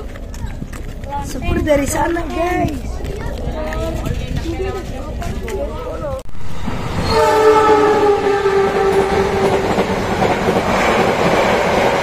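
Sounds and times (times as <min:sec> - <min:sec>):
train rumble and wheel clatter: 0:00.0 - 0:12.0
train horn blast: 0:07.0 - 0:09.7.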